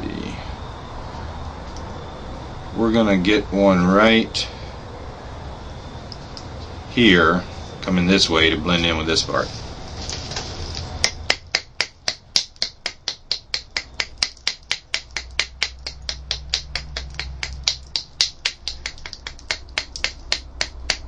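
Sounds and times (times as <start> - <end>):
sharp clicking of tool on flint: 11.0 - 21.0.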